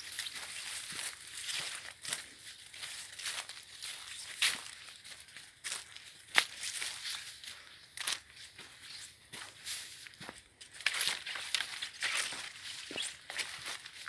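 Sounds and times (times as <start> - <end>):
footsteps crunching leaves and twigs: 0.0 - 14.0.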